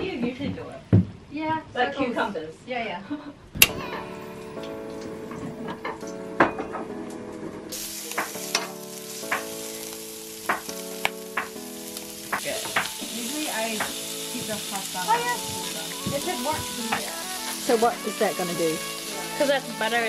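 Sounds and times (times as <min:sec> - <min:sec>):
meat sizzling on a griddle: 0:07.7 - 0:20.0.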